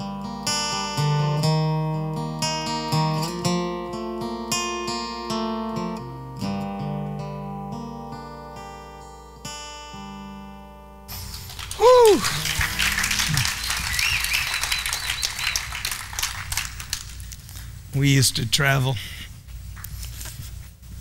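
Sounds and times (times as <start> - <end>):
acoustic guitar strumming chords: 0.0 - 13.6
crowd noise: 11.2 - 17.2
loud rising shout: 11.7 - 15.4.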